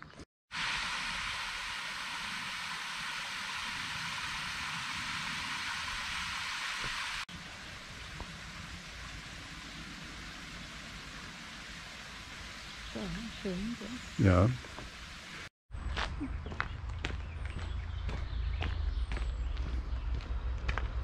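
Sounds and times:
steady hiss: 0.5s - 15.5s
water rushing over a weir: 0.5s - 15.5s.

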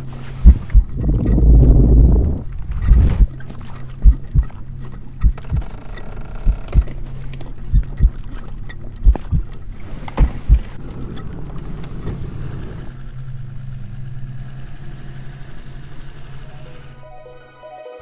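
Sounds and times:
outboard engine droning: 0.0s - 17.0s
low hum: 0.0s - 17.1s
deep double thumps: 0.4s - 3.4s, 4.0s - 4.5s, 5.2s - 5.7s, 6.5s - 6.9s, 9.0s - 9.5s, 10.2s - 10.8s.

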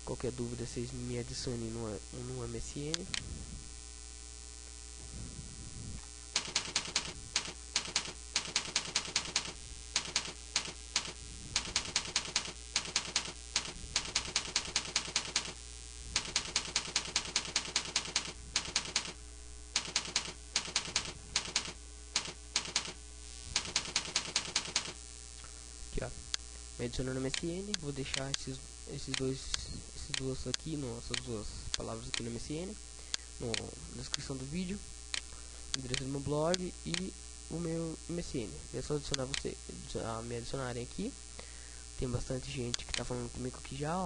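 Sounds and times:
low electrical hum: 0.0s - 44.0s
keyboard typing: 6.4s - 19.2s, 19.8s - 25.0s.

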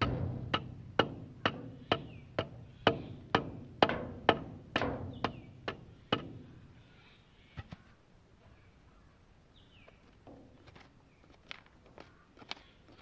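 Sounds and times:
sharp ringing knocks: 0.0s - 6.5s.

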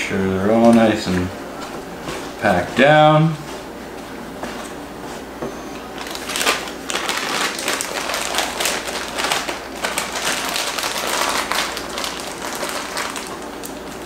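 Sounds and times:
plastic bag crinkling: 5.9s - 14.0s.

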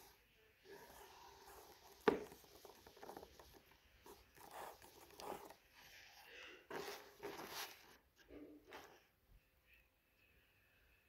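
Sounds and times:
leather holster rustling: 6.7s - 8.0s.

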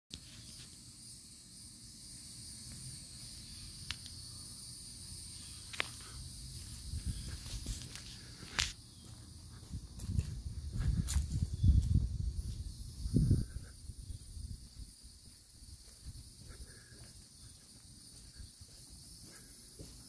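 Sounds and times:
high insect chorus: 0.1s - 20.0s
footsteps and microphone handling thuds: 6.6s - 20.0s.

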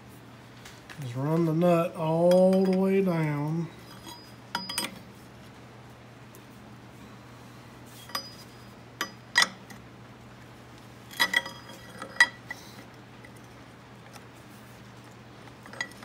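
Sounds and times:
wrench clinking on metal: 2.2s - 5.0s, 8.1s - 9.7s, 11.1s - 12.5s.

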